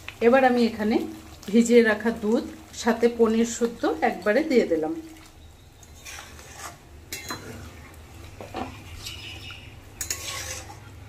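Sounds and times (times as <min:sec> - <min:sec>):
metal spatula scraping pan: 0:05.8 - 0:07.7, 0:08.5 - 0:11.0.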